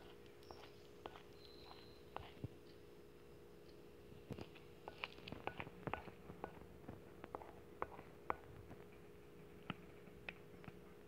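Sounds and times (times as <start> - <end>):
stick stirring sticky slime: 0.0 - 2.8, 3.7 - 9.0
faint steady hum: 0.0 - 11.0.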